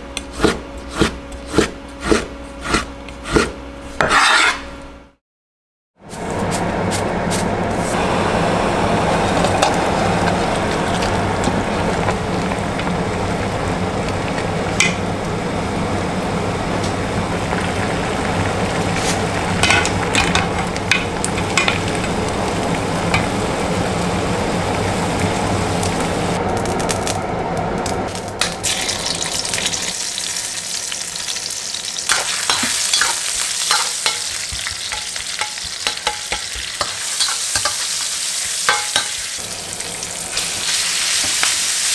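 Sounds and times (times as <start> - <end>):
oil sizzling and crackling: 6.1 - 41.9
water boiling in a pot: 7.8 - 41.9
metal spatula stirring: 32.5 - 38.0.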